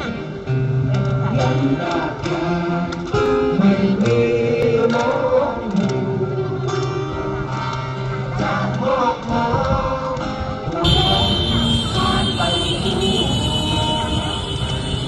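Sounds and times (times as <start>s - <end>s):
person singing: 0.0s - 15.0s
acoustic guitar strumming: 10.2s - 15.0s.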